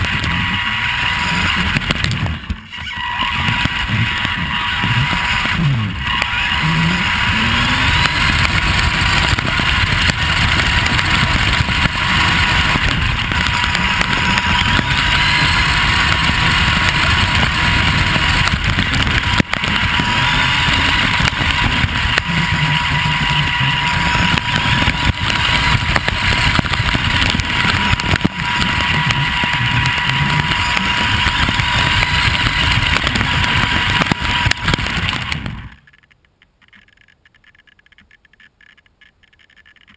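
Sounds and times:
electric motor whine: 0:00.0 - 0:35.9
chassis and tyres rattling: 0:00.0 - 0:39.9.

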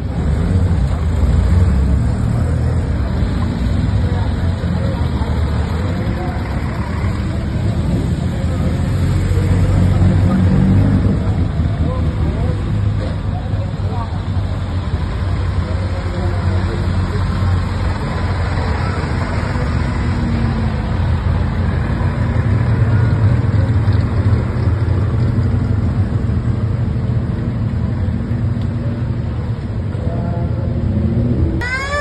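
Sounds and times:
cars driving past: 0:00.0 - 0:32.0
siren rising and falling: 0:31.6 - 0:32.0.

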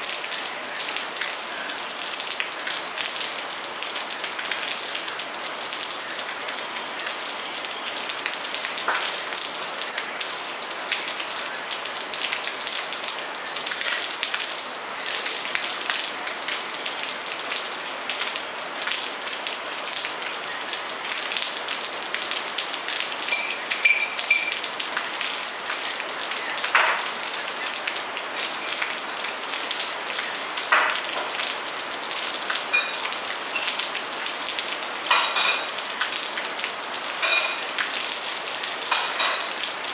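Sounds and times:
steady rain hiss: 0:00.0 - 0:39.9
loud single drips: 0:23.3 - 0:24.6.

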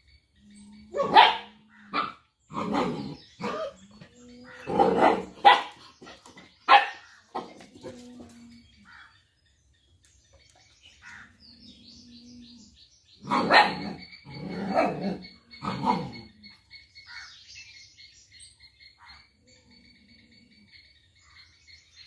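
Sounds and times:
dog barking: 0:01.0 - 0:03.8, 0:04.7 - 0:05.8, 0:06.7 - 0:07.0, 0:13.2 - 0:14.0
dog growling: 0:02.5 - 0:05.4, 0:13.2 - 0:16.4.

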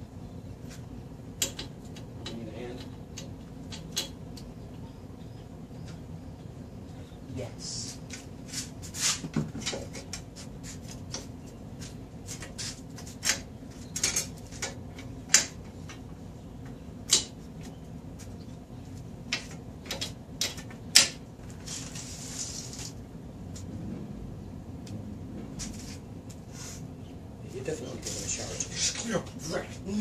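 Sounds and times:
steady low hum: 0:00.0 - 0:30.0
metallic clicks and clanks of tools: 0:01.4 - 0:04.5.

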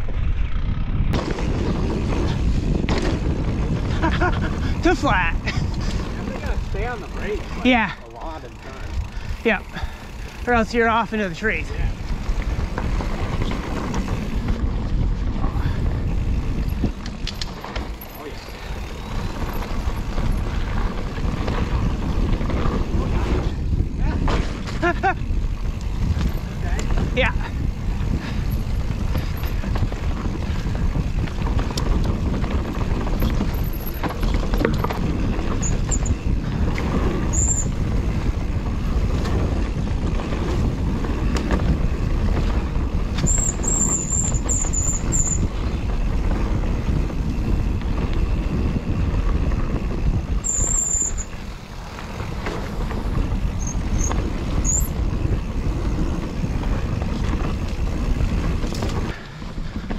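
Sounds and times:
wind on microphone: 0:00.0 - 0:08.0, 0:08.6 - 0:59.9
bike tyres rumbling on dirt: 0:00.0 - 0:59.9
short high-pitched squeaks: 0:35.6 - 0:36.2, 0:37.3 - 0:37.8, 0:43.2 - 0:45.5, 0:50.4 - 0:51.4, 0:53.6 - 0:55.0.

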